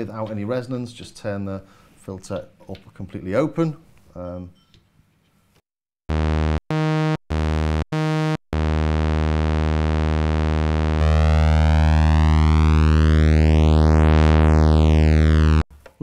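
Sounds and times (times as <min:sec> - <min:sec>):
low buzzy synthesizer note: 0:06.1 - 0:15.6.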